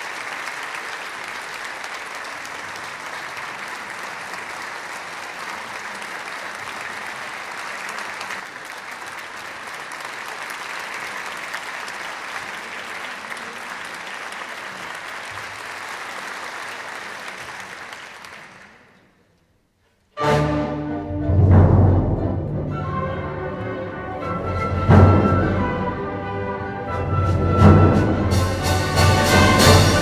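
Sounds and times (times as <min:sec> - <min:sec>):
audience applauding: 0:00.0 - 0:19.1.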